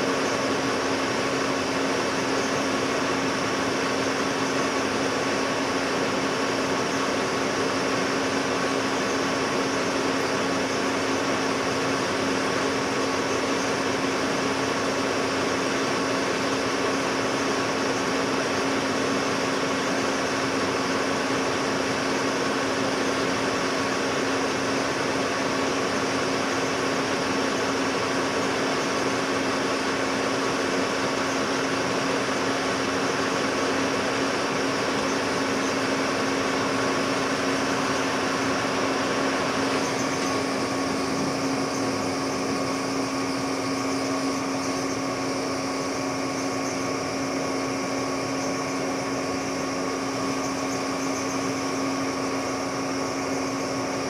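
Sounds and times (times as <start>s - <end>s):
hissy metal cutting noise: 0.0s - 54.0s
metal lathe humming: 0.0s - 54.0s.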